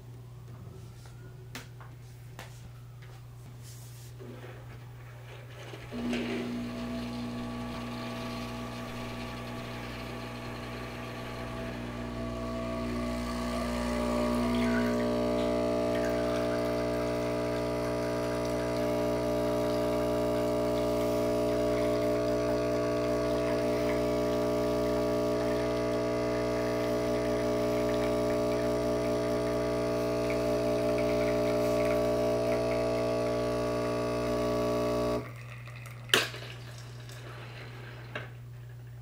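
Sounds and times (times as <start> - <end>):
espresso machine pump buzzing: 5.6 - 36.3.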